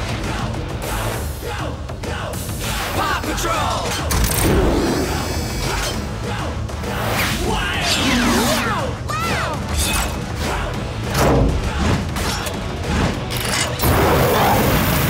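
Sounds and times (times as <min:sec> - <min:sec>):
upbeat music: 0:00.0 - 0:13.9
mechanical clanks: 0:03.8 - 0:04.7, 0:11.1 - 0:13.9.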